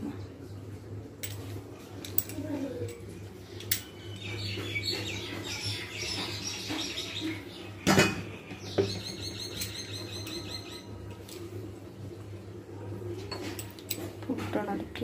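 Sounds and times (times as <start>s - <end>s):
small birds chirping: 3.3s - 11.2s.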